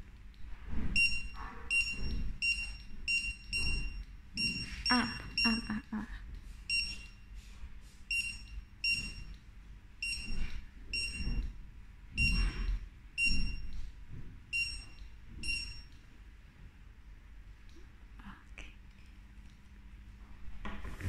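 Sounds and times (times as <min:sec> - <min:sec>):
barcode scanner beeps: 0:01.0 - 0:05.9, 0:06.7 - 0:07.2, 0:08.1 - 0:09.3, 0:10.0 - 0:11.4, 0:12.2 - 0:12.6, 0:13.2 - 0:13.7, 0:14.6 - 0:15.9.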